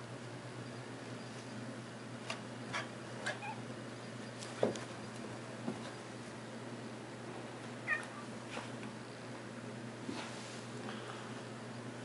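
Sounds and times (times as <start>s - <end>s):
short falling squeak: 3.2s - 3.7s
animals scuffling on stairs: 4.2s - 6.4s.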